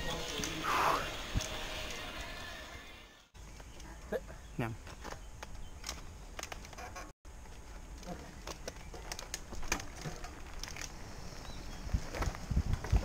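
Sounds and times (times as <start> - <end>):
bike tyres crunching on gravel: 0.0 - 2.8, 7.3 - 13.0
bike clicks: 8.3 - 13.0.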